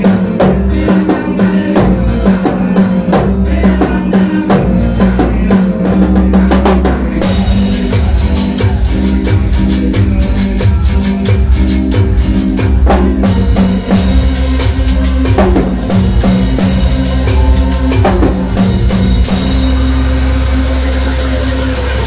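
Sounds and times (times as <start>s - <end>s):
live band dance music: 0.0s - 22.0s
hand-held percussion: 5.4s - 22.0s.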